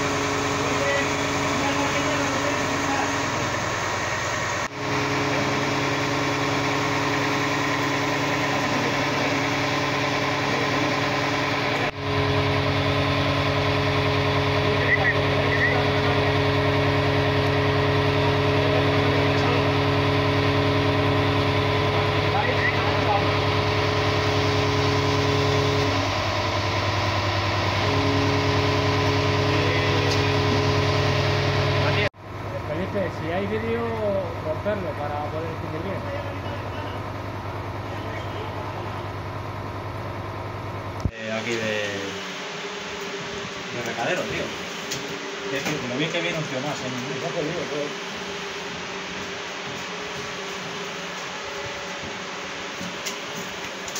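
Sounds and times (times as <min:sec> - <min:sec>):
diesel engine idling: 0:00.0 - 0:41.0.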